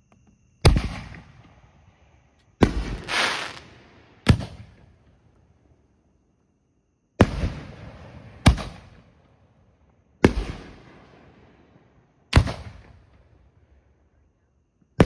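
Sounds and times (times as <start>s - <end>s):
firework shells booming: 2.6s - 4.9s.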